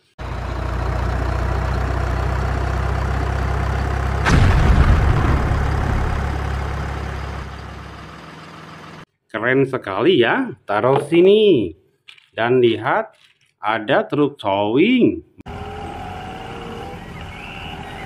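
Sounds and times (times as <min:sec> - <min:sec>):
armoured vehicle engine drone: 0:00.0 - 0:09.0, 0:15.5 - 0:18.0
tank gun firing boom: 0:04.2 - 0:07.8.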